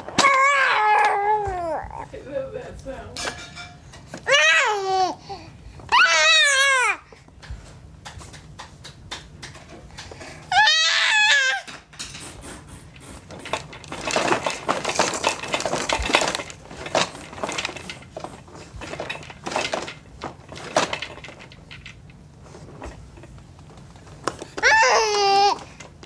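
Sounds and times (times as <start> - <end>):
hard plastic clicking and clattering: 7.3 - 10.3, 13.2 - 26.0.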